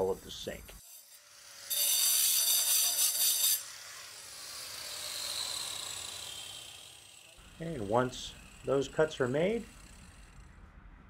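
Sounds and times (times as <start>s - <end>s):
angle grinder cutting stone: 0.8s - 10.5s.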